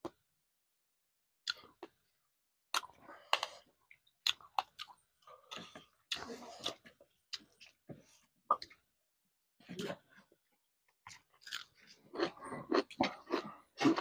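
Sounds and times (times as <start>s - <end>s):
person chewing: 2.7s - 7.8s, 11.1s - 14.0s.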